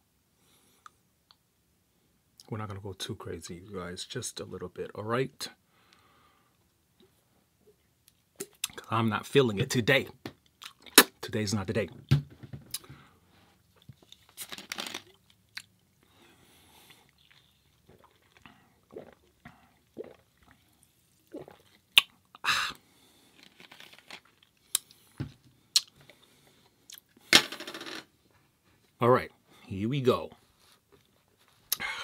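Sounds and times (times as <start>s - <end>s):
chewing and crunching: 16.7s - 22.2s
small clicks and crinkles: 23.3s - 24.6s.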